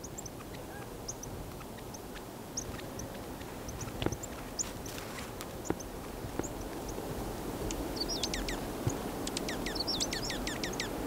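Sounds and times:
small songbirds chipping and twittering: 0.0s - 11.0s
sharp bird clicks: 7.7s - 11.0s.

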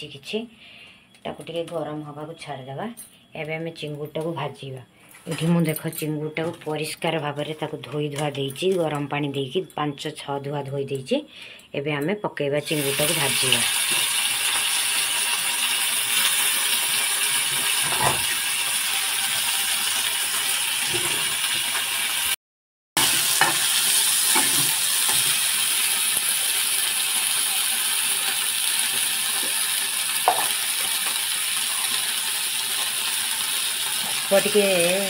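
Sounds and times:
prawns sizzling in oil: 12.6s - 22.4s, 23.0s - 35.0s.

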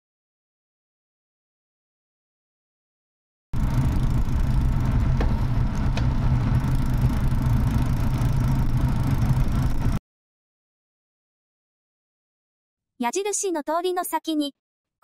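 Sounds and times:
car engine running: 3.6s - 10.0s
road noise: 3.6s - 10.0s.

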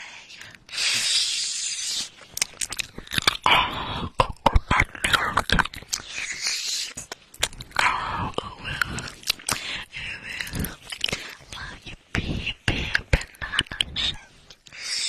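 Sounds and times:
breathy hissing: 0.6s - 2.2s
wet mouth clicks and smacks: 1.8s - 3.5s, 4.2s - 11.8s, 12.7s - 14.8s.

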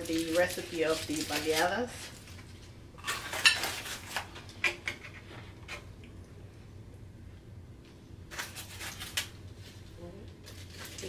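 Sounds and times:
aluminium foil crinkling: 0.0s - 4.5s, 8.3s - 11.0s.

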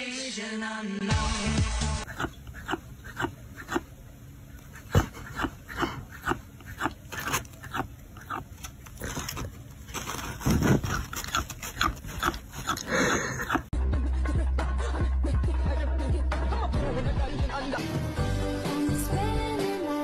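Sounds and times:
animal's short noises: 2.1s - 3.9s, 4.6s - 9.5s, 10.4s - 13.7s.

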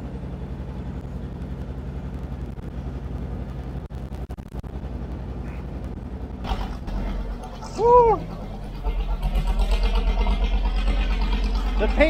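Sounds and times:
crane engine running: 0.0s - 12.0s.

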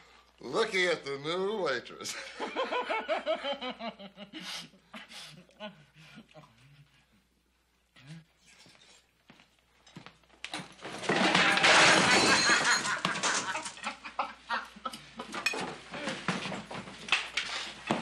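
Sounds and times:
men laughing loudly: 2.1s - 4.4s, 11.7s - 15.4s
person falling on floor: 10.6s - 13.8s, 15.3s - 18.0s
crockery clattering: 10.6s - 14.1s, 15.2s - 17.0s.

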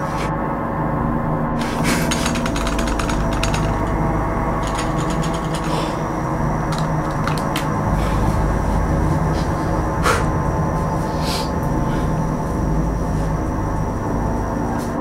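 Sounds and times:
steady low drone: 0.0s - 15.0s
small mechanical clicks: 1.6s - 4.0s, 4.6s - 5.8s.

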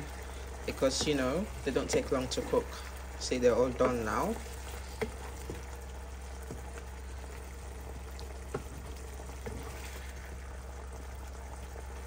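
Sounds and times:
low steady hum: 0.0s - 12.0s
prawns simmering in a frying pan: 0.0s - 12.0s
wooden spatula knocking on pan: 0.9s - 2.4s, 3.7s - 4.2s, 5.0s - 5.7s, 6.4s - 6.7s, 8.4s - 9.6s.

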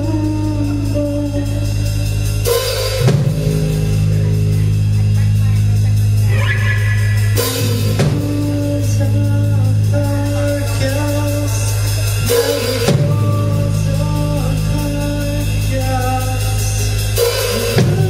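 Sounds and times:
rock band playing: 0.0s - 18.0s.

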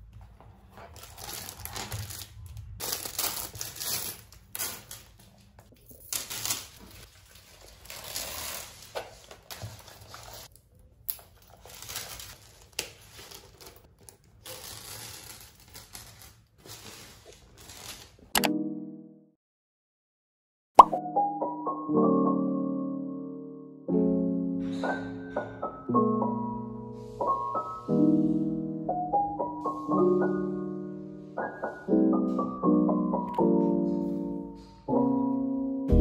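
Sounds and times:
packaging crinkling and rustling: 0.4s - 18.3s.

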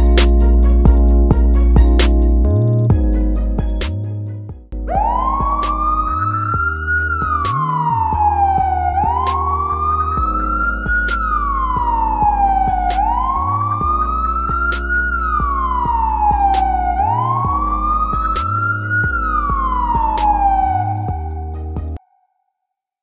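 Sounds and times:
background music with beat and bass: 0.0s - 22.0s
police siren wailing: 4.9s - 22.0s.

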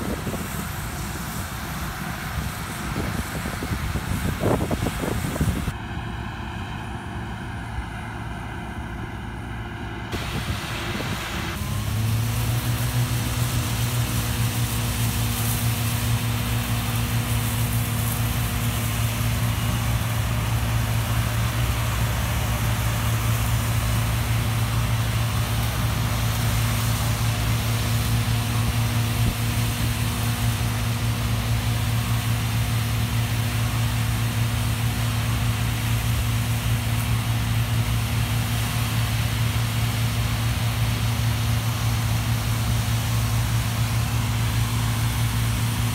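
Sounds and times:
combine harvester engine hum: 0.0s - 45.9s
grain pouring through auger: 10.2s - 45.9s.

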